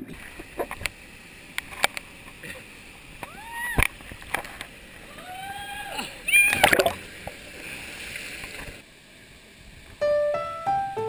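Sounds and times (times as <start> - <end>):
water splashing: 0.0 - 9.8
people yelling and whooping: 3.2 - 3.9, 5.1 - 6.9.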